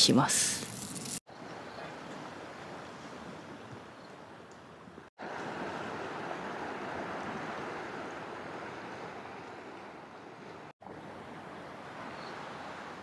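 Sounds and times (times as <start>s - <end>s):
wind: 0.0s - 13.0s
surf on a rocky shore: 5.2s - 13.0s.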